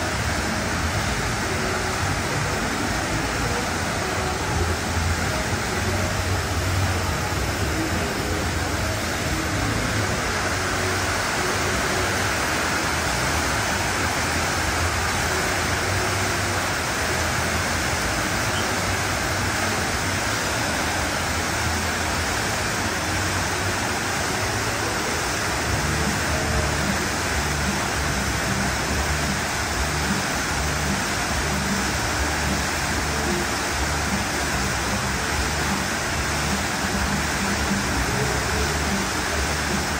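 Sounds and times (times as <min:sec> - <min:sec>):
waterfall rushing into a pool: 0:00.0 - 0:39.9.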